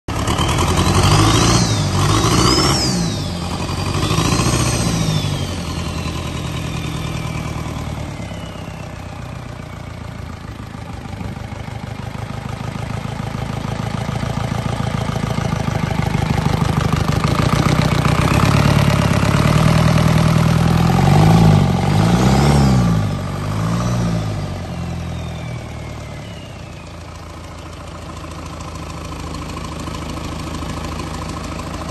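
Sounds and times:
diesel truck engine revving: 0.1 - 11.0, 13.4 - 27.2
high turbo whistle: 0.3 - 10.0, 24.5 - 27.2.

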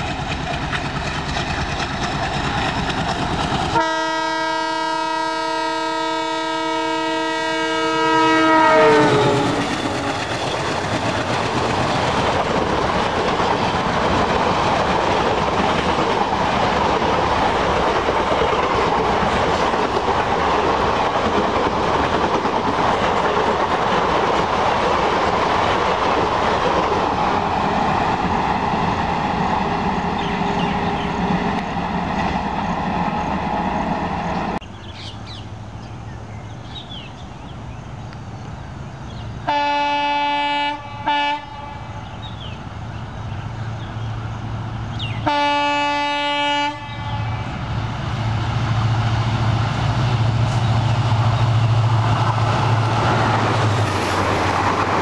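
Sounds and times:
train coaches clattering on rails: 0.0 - 4.6, 8.4 - 34.6, 48.1 - 55.0
locomotive horn blasts: 3.8 - 10.3, 39.5 - 42.0, 45.2 - 47.5.

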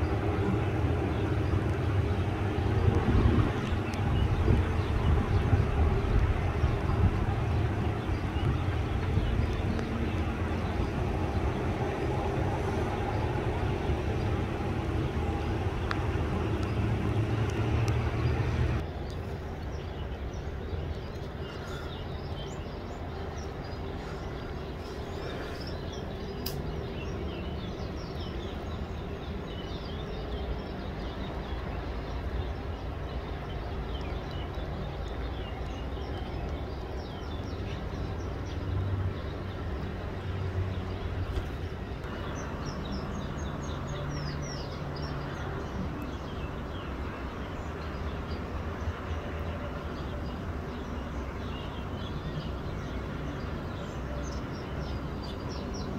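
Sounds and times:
steady low rumble: 0.0 - 43.8
small birds chirping: 0.0 - 55.9.

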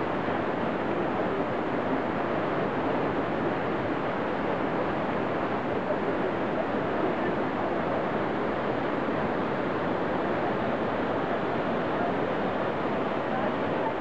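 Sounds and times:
waterfall rushing into river: 0.0 - 14.0.

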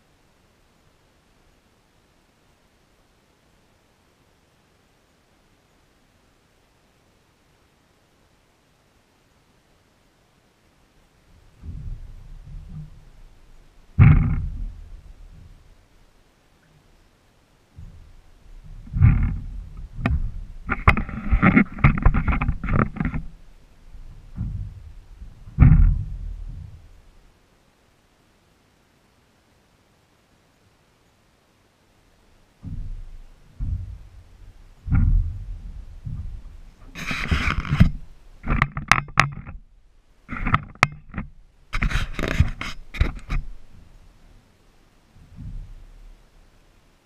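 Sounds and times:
camera handling rubbing and scraping: 18.8 - 23.4, 36.8 - 39.6, 40.3 - 43.6
knocks on aluminium boat hull: 21.7 - 27.0, 32.6 - 36.8.

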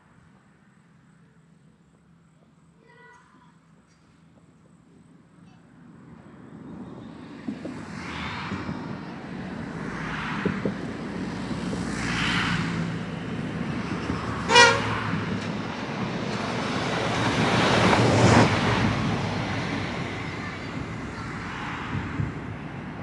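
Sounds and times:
railcar engine and wheel rumble: 0.0 - 23.0
train horn toot: 14.4 - 15.1.

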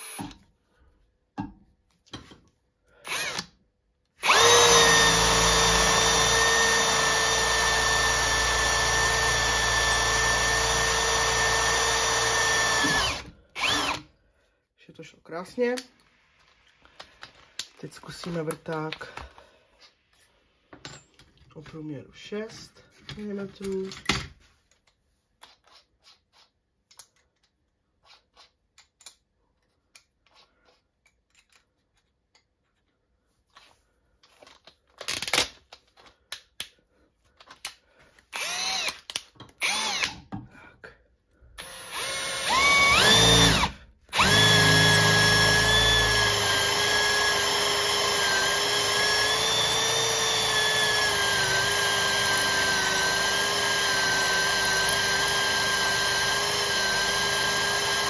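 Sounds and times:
cordless drill motor: 0.0 - 0.4, 3.0 - 3.6, 4.2 - 14.1, 38.3 - 40.2, 41.6 - 58.0
drill bit drilling into iron: 0.0 - 0.4, 3.1 - 3.5, 4.2 - 14.0, 38.4 - 39.0, 39.6 - 40.2, 41.6 - 58.0.

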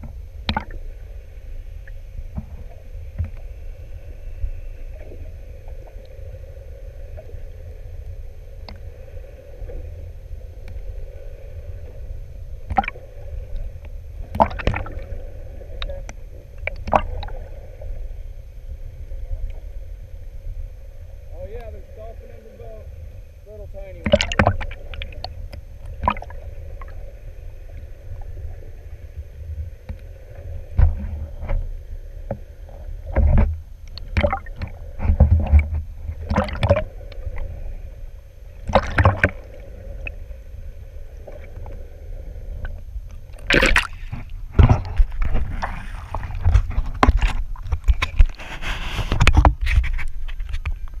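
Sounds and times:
water splashing and sloshing: 0.0 - 3.9, 4.9 - 51.0
muffled underwater rumble: 0.0 - 51.0
sharp underwater clicks and knocks: 0.4 - 0.8, 12.7 - 13.0, 13.8 - 15.0, 15.8 - 17.3, 24.0 - 26.3, 33.1 - 37.2, 38.7 - 39.4, 43.4 - 51.0.

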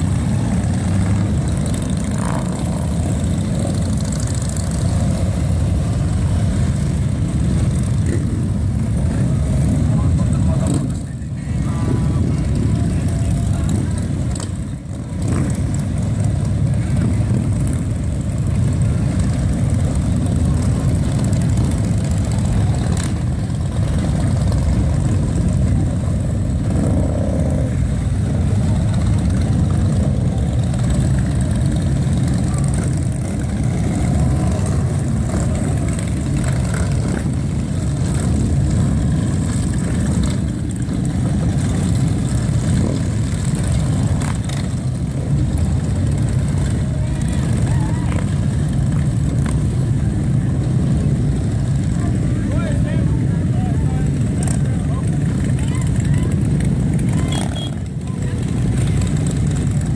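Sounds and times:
motorcycles riding past: 0.0 - 59.9.

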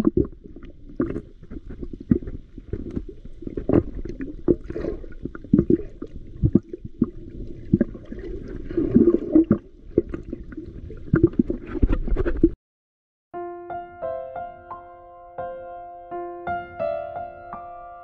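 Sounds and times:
muffled underwater sloshing: 0.0 - 12.6.

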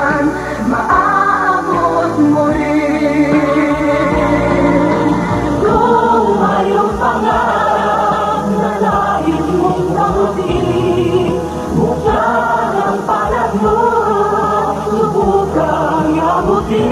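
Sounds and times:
backing band: 0.0 - 16.9
group of voices singing: 0.0 - 16.9
sustained bass: 0.0 - 16.9
drum hits: 3.3 - 7.6.

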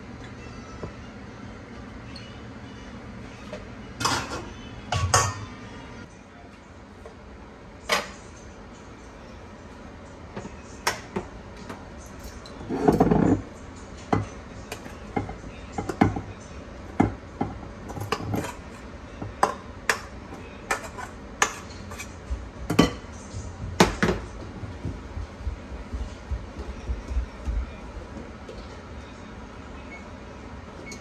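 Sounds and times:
metal spoon scraping a pot: 20.7 - 22.2.

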